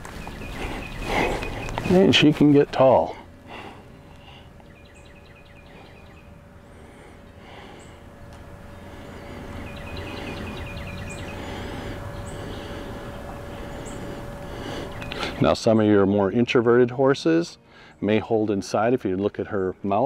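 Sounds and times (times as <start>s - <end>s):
songbird chirping: 0.0s - 3.0s, 4.1s - 6.5s, 7.2s - 16.4s
low rumbling noise: 0.0s - 19.9s
faint steady hum: 0.0s - 20.0s.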